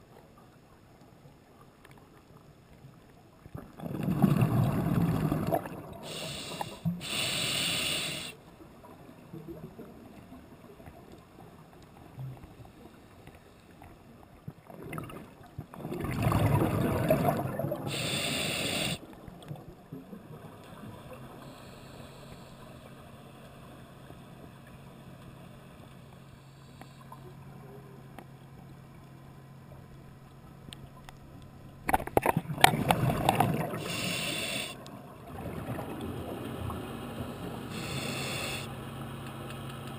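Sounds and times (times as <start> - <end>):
underwater rushing bubbles: 3.5 - 6.8, 14.5 - 18.2, 31.9 - 34.2, 34.9 - 37.5.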